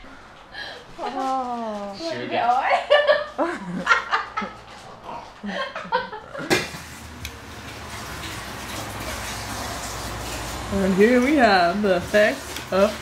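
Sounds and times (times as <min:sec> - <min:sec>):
woman laughing: 0:02.7 - 0:04.6, 0:05.4 - 0:06.5.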